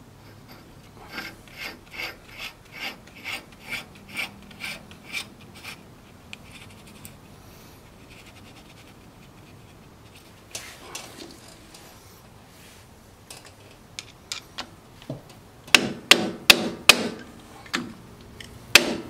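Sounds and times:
metal threads rasping: 0:00.2 - 0:07.2.

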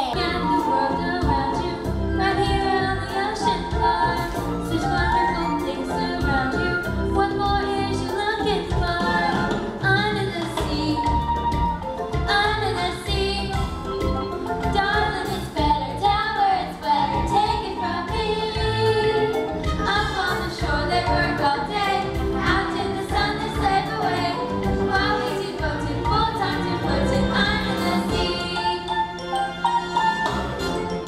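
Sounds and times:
musical accompaniment: 0:00.0 - 0:31.0
cast singing ensemble number: 0:16.8 - 0:29.2.

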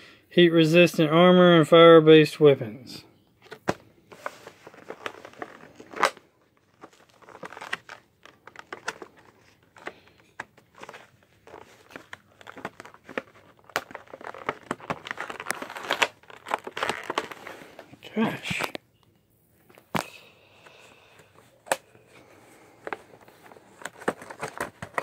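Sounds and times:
plastic blister pack crinkling: 0:03.4 - 0:18.8, 0:21.2 - 0:25.0.

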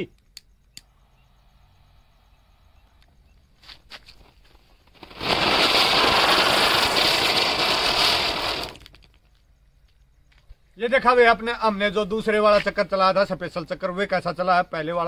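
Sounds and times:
fuse crackling: 0:03.0 - 0:09.5
spinning firework hissing: 0:04.1 - 0:09.1.

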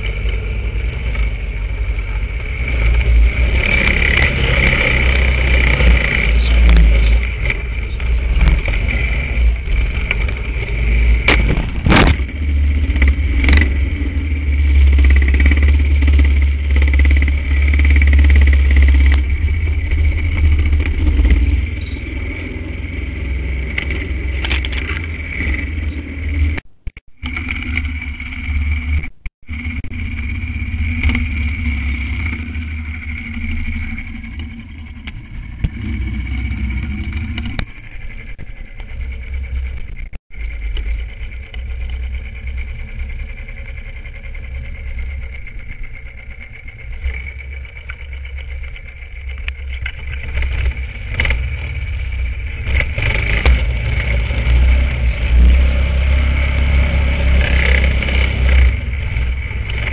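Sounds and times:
snowmobile engine rumbling: 0:00.0 - 0:59.9.

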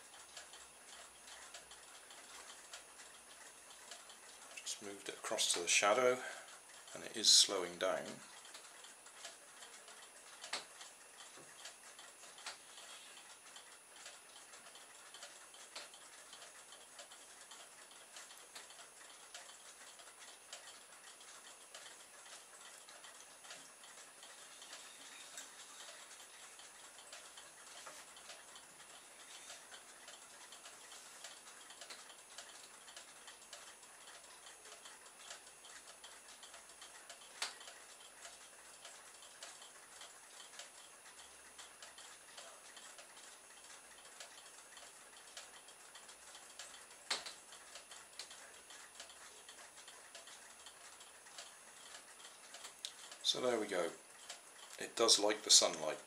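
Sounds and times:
faint clicks and ticks: 0:00.0 - 0:56.0.

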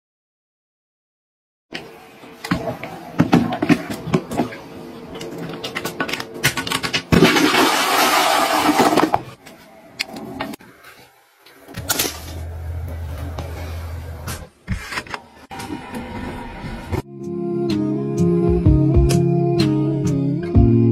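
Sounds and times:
toilet flushing: 0:07.1 - 0:09.3.

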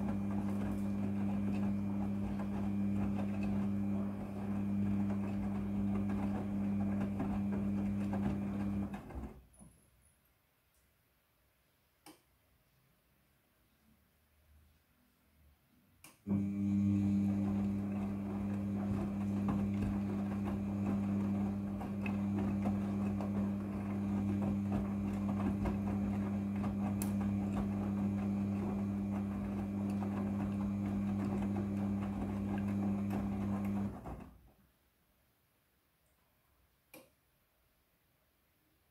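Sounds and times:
washing machine motor hum: 0:00.0 - 0:09.4, 0:16.2 - 0:34.5.

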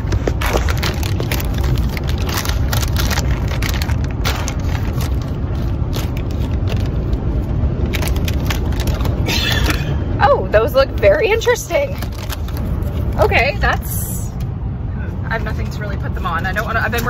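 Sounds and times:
plastic snack bag crinkling: 0:00.0 - 0:09.8, 0:11.8 - 0:13.3
car road noise rumble: 0:00.0 - 0:17.0.

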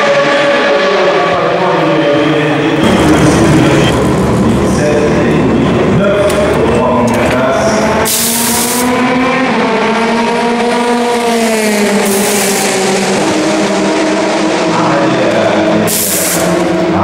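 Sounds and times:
race car engine passing: 0:00.0 - 0:17.0
pneumatic wheel gun hissing bursts: 0:08.1 - 0:08.8, 0:15.9 - 0:16.6.

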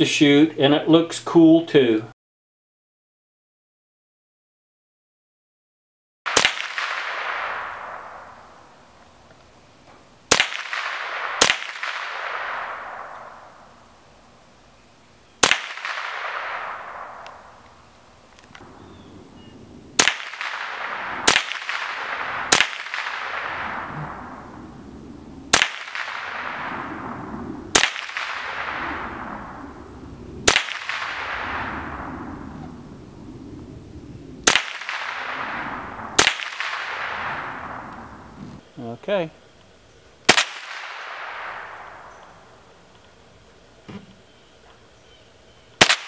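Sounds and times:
rifle shots with echo: 0:06.3 - 0:08.8, 0:10.3 - 0:13.9, 0:15.4 - 0:17.6, 0:19.9 - 0:24.8, 0:25.5 - 0:32.8, 0:34.4 - 0:38.4, 0:40.3 - 0:42.7, 0:45.8 - 0:46.0.

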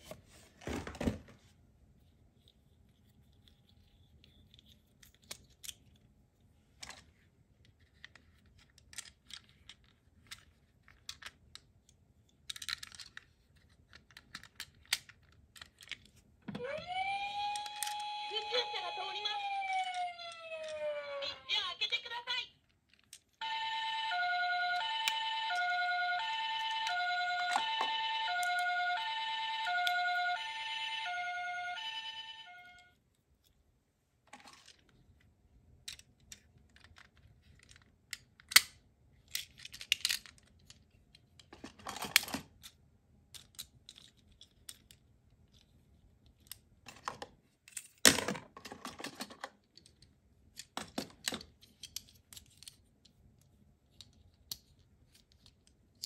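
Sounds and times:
toy ambulance two-tone siren: 0:16.5 - 0:21.6, 0:23.4 - 0:33.0
plastic toy clicks and snaps: 0:38.1 - 0:40.4.

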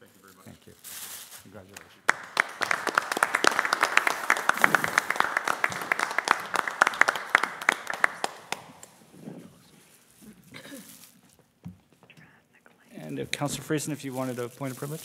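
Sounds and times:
small group applauding: 0:01.7 - 0:09.0.

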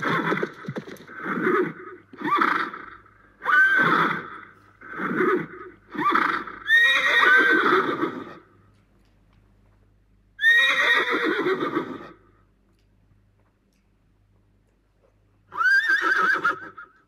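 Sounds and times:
horse neighing: 0:00.0 - 0:08.4, 0:10.4 - 0:12.2, 0:15.5 - 0:17.0.

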